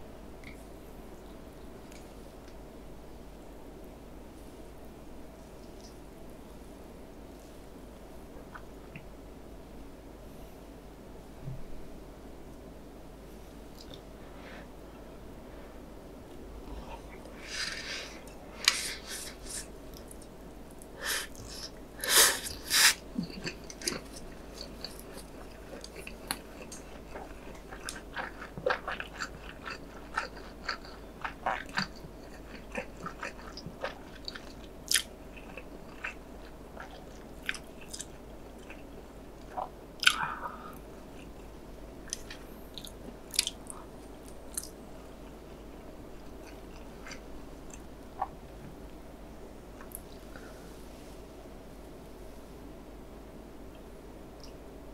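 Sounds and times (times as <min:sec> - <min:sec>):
person chewing noodles: 0:17.1 - 0:48.3.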